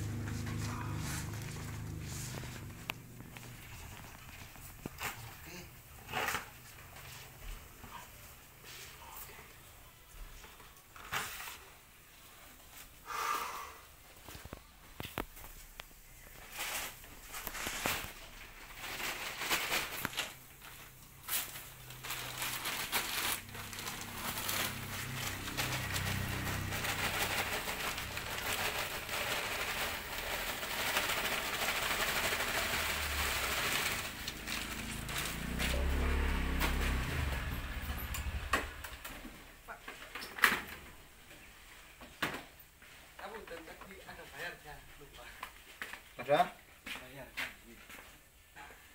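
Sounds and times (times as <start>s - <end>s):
plastic sack rustling: 0.0s - 9.2s, 14.2s - 42.0s
potting medium pouring: 25.8s - 35.8s.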